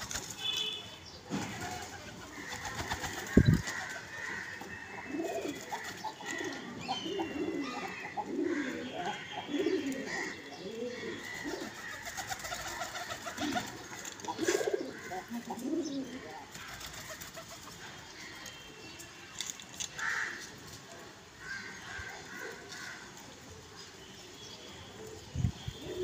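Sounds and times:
pigeons cooing: 0:01.3 - 0:17.8, 0:25.7 - 0:26.0.

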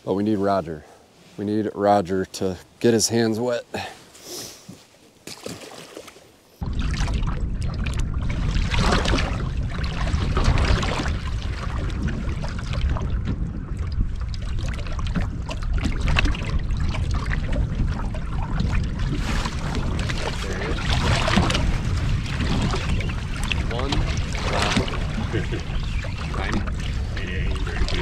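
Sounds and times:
water lapping against hull: 0:04.7 - 0:28.0
faint fish splashing: 0:05.2 - 0:28.0
wind buffeting microphone: 0:06.6 - 0:28.0.

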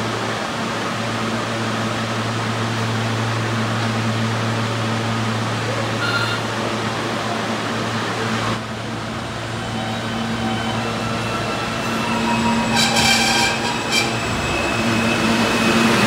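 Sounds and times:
subway train rumbling: 0:00.0 - 0:16.0
train brake squeal: 0:06.0 - 0:06.5, 0:09.7 - 0:16.0.

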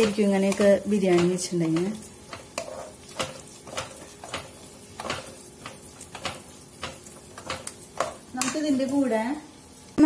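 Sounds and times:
metal spatula scraping a pan: 0:00.0 - 0:08.6
masala frying quietly: 0:00.0 - 0:10.0.

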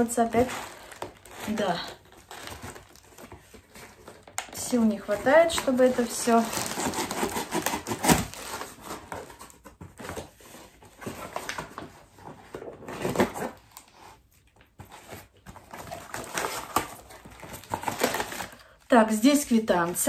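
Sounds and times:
cardboard box being torn open: 0:05.5 - 0:11.8, 0:12.5 - 0:13.8, 0:15.6 - 0:18.5.

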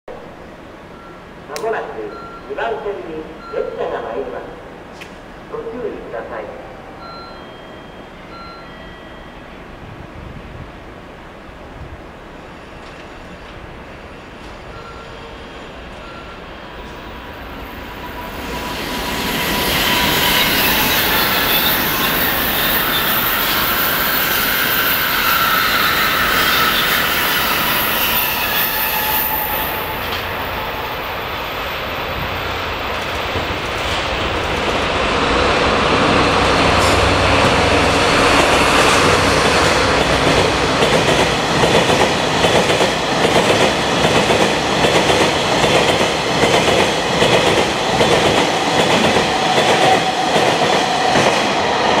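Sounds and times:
train wheels squealing: 0:07.0 - 0:09.5, 0:12.4 - 0:31.7.

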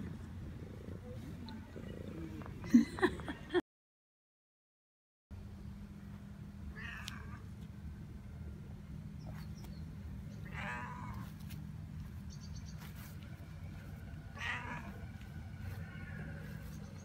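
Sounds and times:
low background hum: 0:00.0 - 0:03.6, 0:05.3 - 0:17.0
cat meowing: 0:06.7 - 0:07.4, 0:10.4 - 0:11.4, 0:14.3 - 0:15.1.

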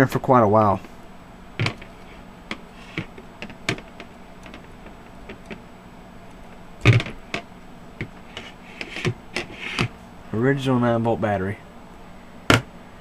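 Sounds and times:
plastic case clicks and knocks: 0:06.8 - 0:07.4, 0:12.5 - 0:12.7.

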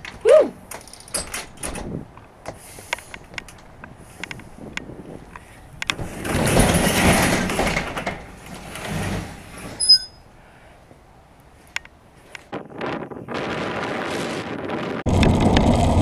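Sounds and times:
garage door rumbling open: 0:00.6 - 0:02.1, 0:05.9 - 0:10.3.

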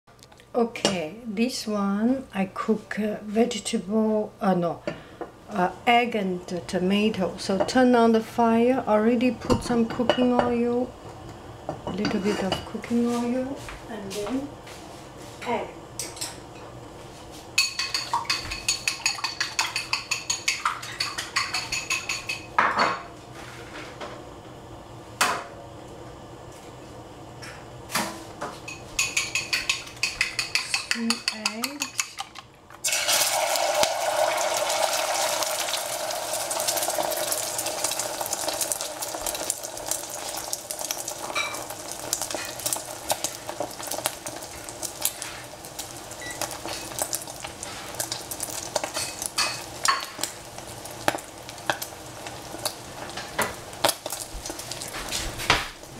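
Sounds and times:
egg sizzling in hot oil: 0:17.5 - 0:22.6, 0:28.7 - 0:32.2, 0:32.8 - 0:55.9
eggs beaten in a bowl: 0:17.6 - 0:22.5, 0:29.0 - 0:32.5.

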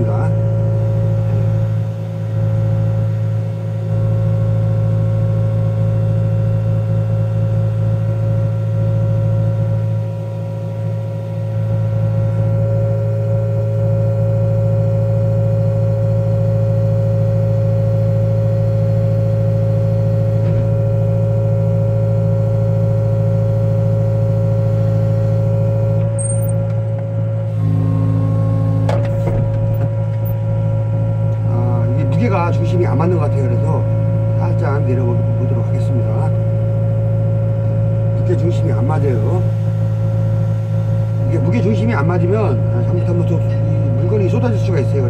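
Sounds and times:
steady hydraulic whine: 0:00.0 - 0:06.2, 0:18.2 - 0:33.8, 0:38.2 - 0:45.0.

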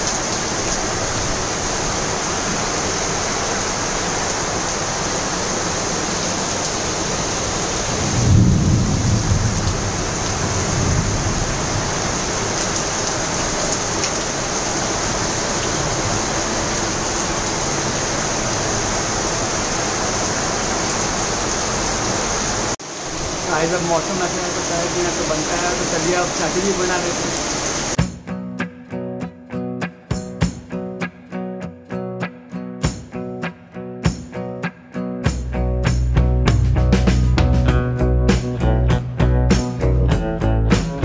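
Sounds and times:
heavy rain pouring: 0:00.0 - 0:28.0
thunder rumbling: 0:07.8 - 0:13.6.

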